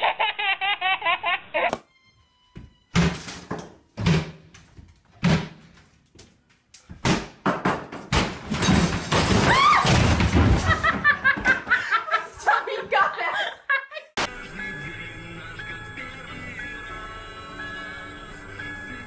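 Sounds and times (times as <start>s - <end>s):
baby laughing: 0.0s - 1.8s
heavy wooden thuds and bangs: 7.0s - 11.8s.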